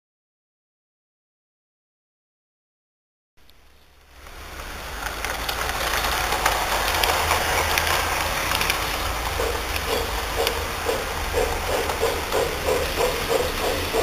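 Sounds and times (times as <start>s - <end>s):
wheels clicking on rails: 3.4s - 14.0s
model train running on track: 3.6s - 14.0s.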